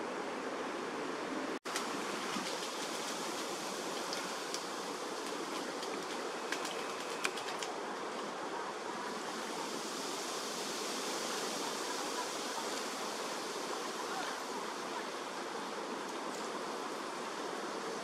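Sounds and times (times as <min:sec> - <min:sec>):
water flowing: 0:01.6 - 0:18.0
bird splashing in water: 0:01.7 - 0:04.6, 0:05.2 - 0:07.8.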